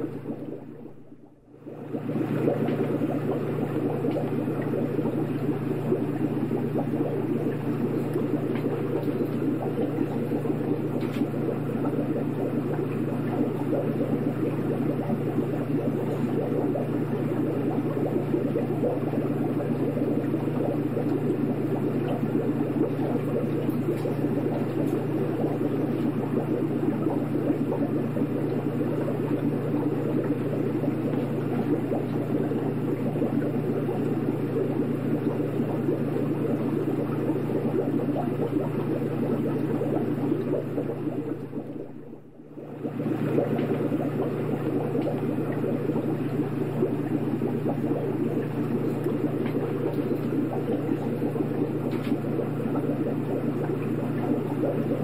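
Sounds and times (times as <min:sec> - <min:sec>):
aquarium water bubbling: 0:00.0 - 0:55.0
low pump hum: 0:00.0 - 0:55.0.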